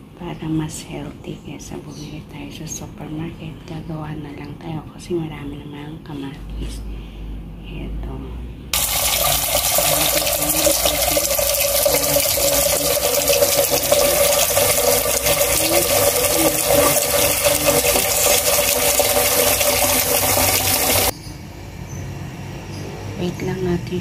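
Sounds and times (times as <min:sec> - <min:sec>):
tap water pouring into metal pot: 0:08.8 - 0:21.1.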